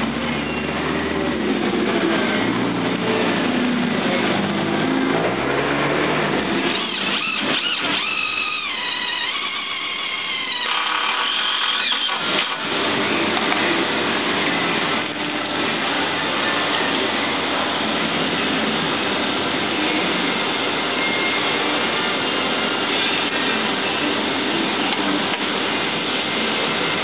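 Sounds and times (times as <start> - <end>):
noisy background: 0.0 - 27.0
cordless drill motor whining: 6.6 - 12.9.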